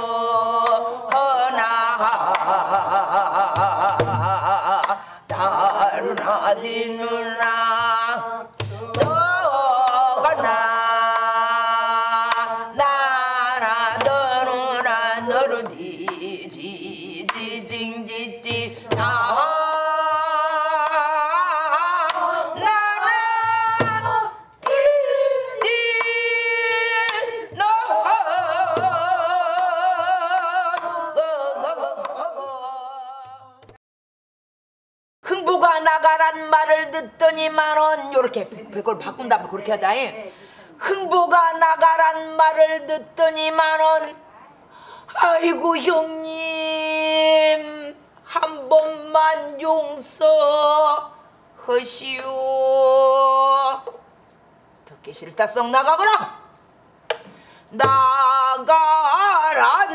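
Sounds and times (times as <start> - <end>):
person singing long notes: 0.0 - 33.8.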